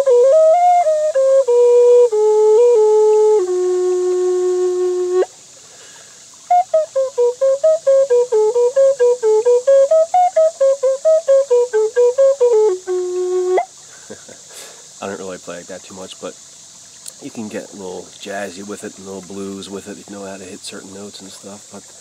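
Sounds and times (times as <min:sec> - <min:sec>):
wooden flute melody: 0:00.0 - 0:05.4, 0:06.4 - 0:13.8.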